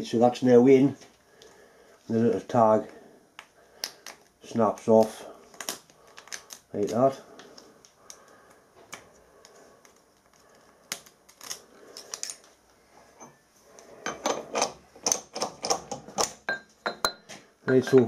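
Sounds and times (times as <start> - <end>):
metal tools clinking on a vise: 14.1 - 18.0.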